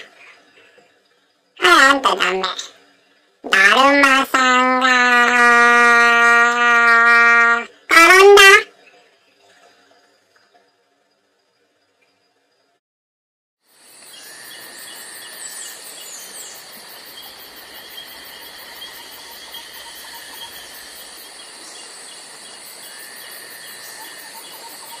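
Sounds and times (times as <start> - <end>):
insects chirping and trilling: 0.0 - 12.8, 13.6 - 25.0
bird calls: 14.2 - 25.0.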